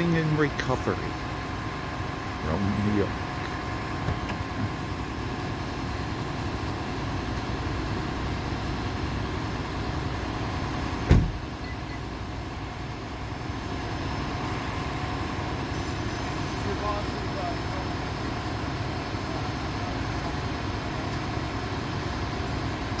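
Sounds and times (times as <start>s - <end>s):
truck engine idling: 0.0s - 23.0s
loud thump: 11.0s - 11.4s.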